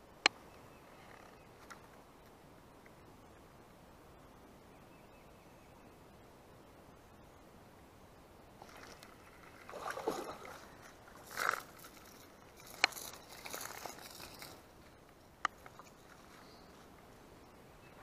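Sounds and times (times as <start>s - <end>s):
rustling and handling noises: 8.6s - 17.1s.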